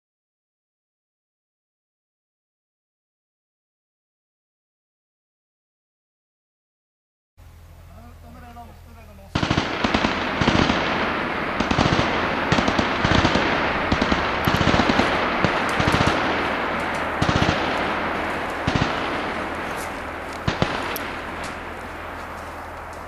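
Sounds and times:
small-arms gunfire: 9.4 - 23.0.

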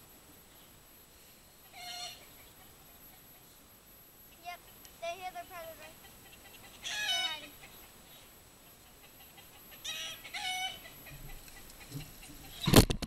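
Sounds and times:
rooster alarm squawks: 6.8 - 7.5.

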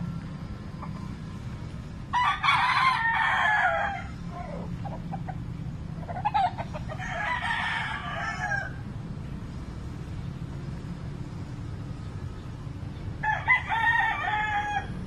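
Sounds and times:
roosters crowing: 2.0 - 9.6, 12.9 - 15.0.

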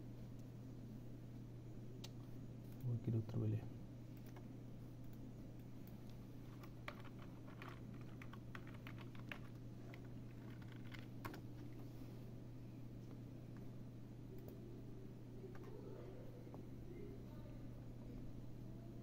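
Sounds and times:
steady low hum: 0.0 - 19.0
typing on computer keyboard: 6.5 - 11.7.

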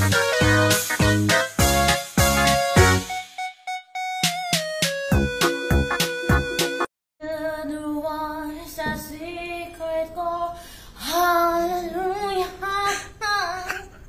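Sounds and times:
woman singing: 7.2 - 14.0.

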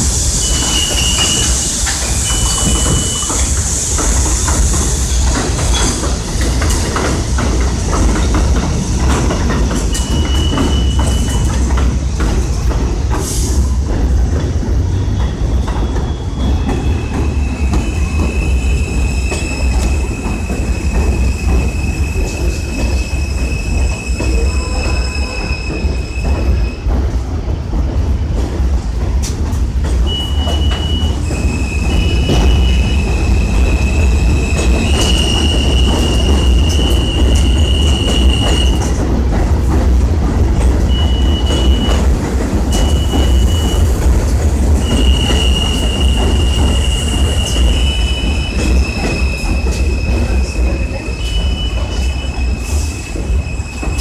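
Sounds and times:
train rumbling past: 0.0 - 54.0
wheel squeal: 0.4 - 3.5, 9.9 - 11.5.

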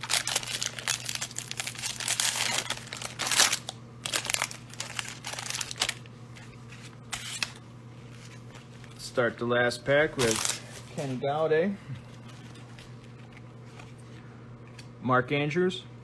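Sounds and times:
plastic wrapper crinkling and tearing: 0.0 - 6.1, 10.1 - 11.0
cards sliding: 5.8 - 8.7.

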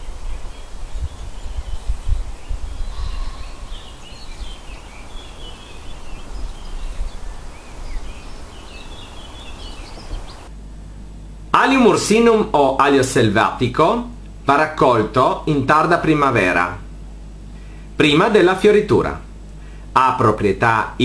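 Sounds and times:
small birds chirping: 0.0 - 10.5
wind rumble on microphone: 0.0 - 10.5.

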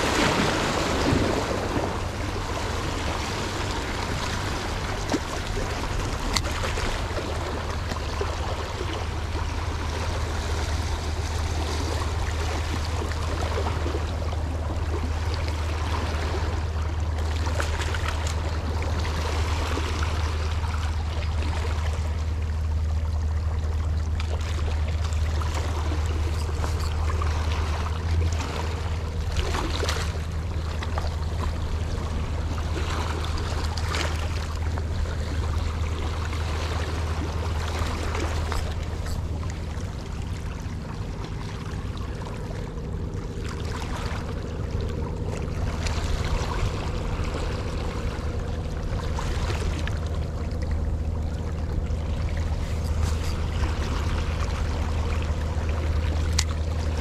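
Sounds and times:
low rumble: 0.0 - 57.0
seawater sloshing and lapping: 0.0 - 57.0
water splashes: 0.0 - 57.0.

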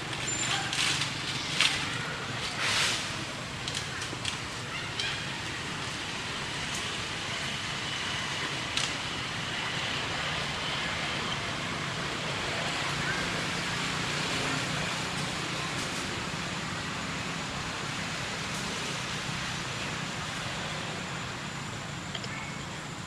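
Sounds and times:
outdoor background noise: 0.0 - 23.0
faint clicks: 22.1 - 22.4.

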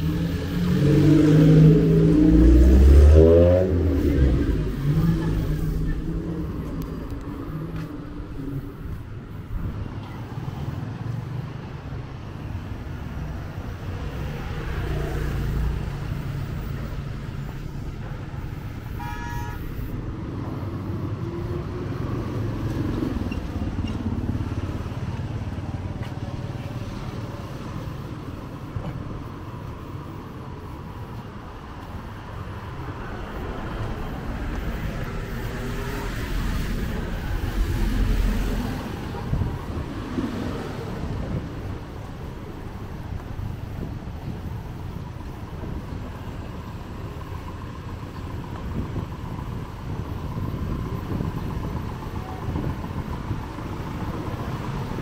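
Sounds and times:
traffic rumble: 0.0 - 55.0
vehicle horn toot: 18.9 - 19.9.

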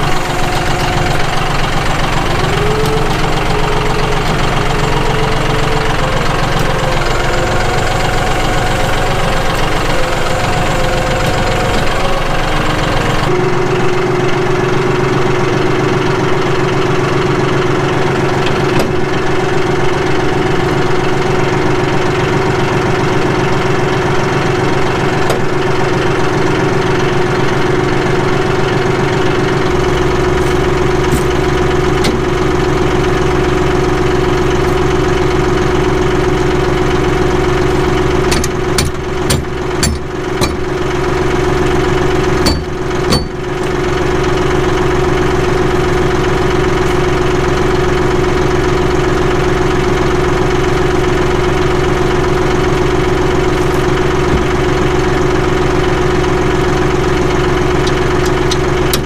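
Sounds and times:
diesel tractor engine idling: 0.0 - 59.0
sharp knocks and clicks: 38.3 - 40.8, 42.4 - 43.5.

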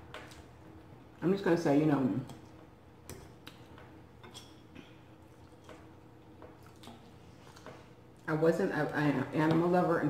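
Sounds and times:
chewing salad: 5.2 - 8.3.

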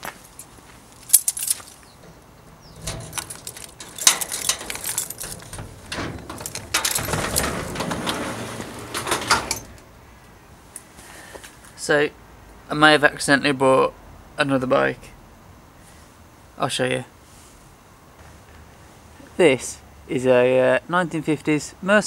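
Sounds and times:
keys jangling in lock: 1.1 - 1.8, 2.7 - 9.8
garage door rattling and scraping: 1.2 - 10.0.

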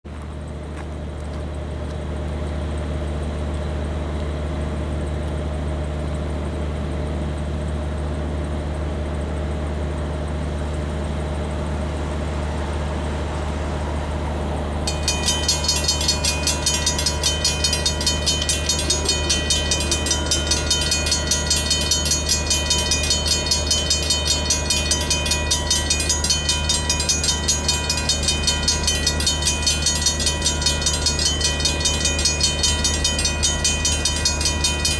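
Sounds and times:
diesel locomotive engine hum: 0.1 - 34.9
crossing bell ringing: 13.8 - 34.9.

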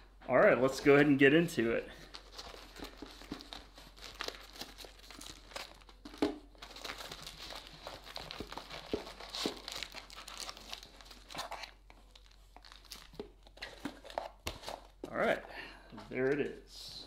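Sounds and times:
foil packs crinkling: 1.9 - 14.9
packing peanuts rustling: 1.9 - 14.9.

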